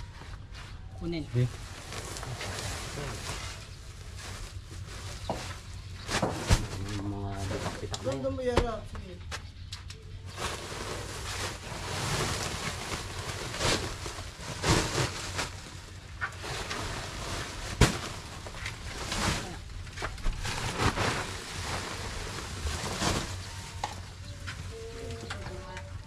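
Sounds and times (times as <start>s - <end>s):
sacks rustling and scraping: 0.0s - 8.8s, 10.2s - 25.8s
sacks thumping down: 6.0s - 7.1s, 10.9s - 23.7s.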